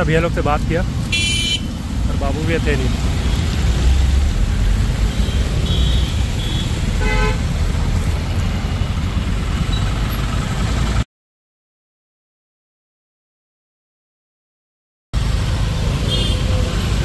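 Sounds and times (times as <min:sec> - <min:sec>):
road traffic rumble: 0:00.0 - 0:11.1, 0:15.2 - 0:17.0
vehicle horn honking: 0:01.1 - 0:01.8, 0:05.2 - 0:07.5, 0:16.1 - 0:16.4.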